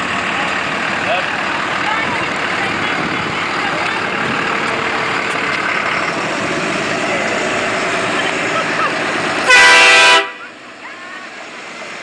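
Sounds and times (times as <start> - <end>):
pickup truck engine running: 0.0 - 12.0
truck horn: 9.4 - 10.6.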